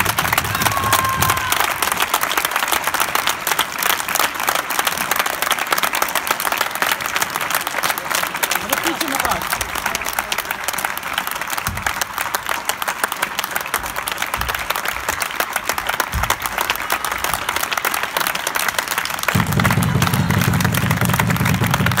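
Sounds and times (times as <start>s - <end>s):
people clapping: 0.0s - 22.0s
loud low hum: 19.4s - 22.0s.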